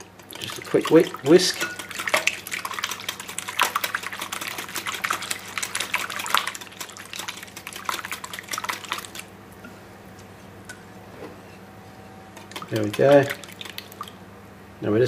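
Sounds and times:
whisk beating eggs in bowl: 0.0s - 9.3s, 12.3s - 14.2s.

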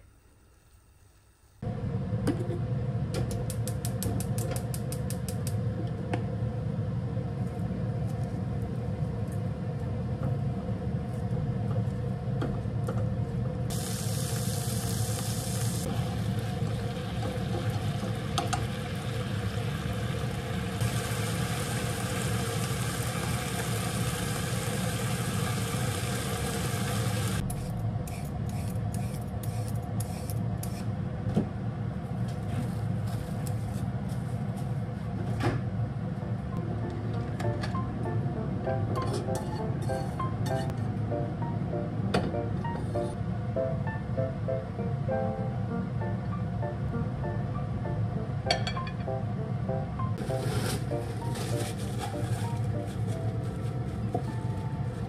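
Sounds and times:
pork sizzling in a pan: 13.7s - 27.4s.

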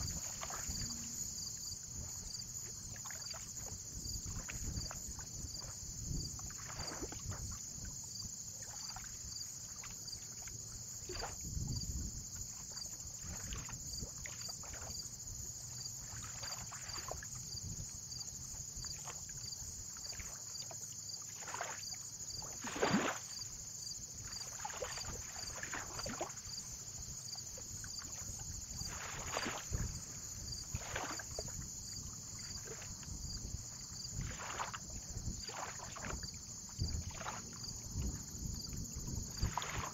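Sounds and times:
lake waves lapping and splashing: 0.0s - 39.9s
low wind rumble: 36.0s - 39.9s.

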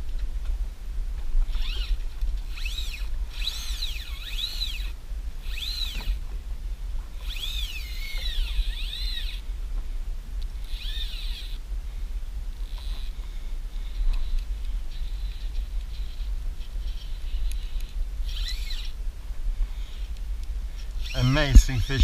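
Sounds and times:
fly reel whining: 1.4s - 6.2s, 7.2s - 9.4s, 10.6s - 11.7s, 12.6s - 19.0s, 19.7s - 22.0s
steady low rumble: 18.9s - 22.0s.

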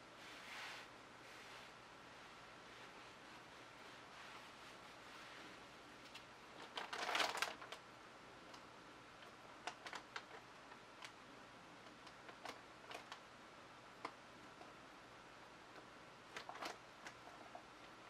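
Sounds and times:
handling clicks and crackles: 6.0s - 7.8s, 8.4s - 11.2s, 11.8s - 13.2s, 15.7s - 18.0s.

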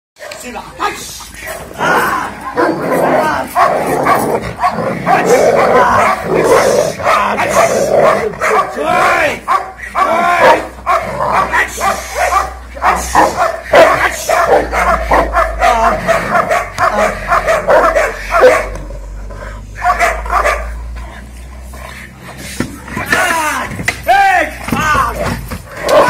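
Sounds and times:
dog barking and yelping: 1.4s - 21.3s, 25.7s - 26.0s.

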